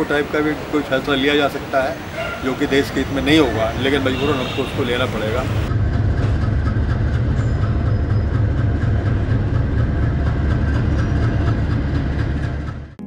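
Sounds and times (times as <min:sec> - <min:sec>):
diesel locomotive engine droning: 0:00.0 - 0:13.0.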